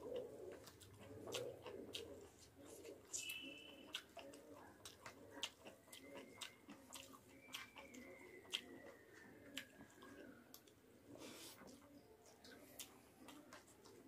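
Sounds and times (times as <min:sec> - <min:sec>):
person chewing food: 0:00.0 - 0:14.0
wet mouth clicks and smacks: 0:00.6 - 0:02.3.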